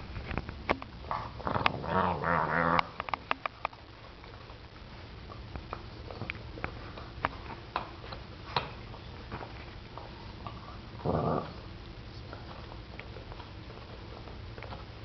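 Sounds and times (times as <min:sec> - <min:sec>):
dog growling: 0:01.1 - 0:03.0, 0:11.0 - 0:11.7.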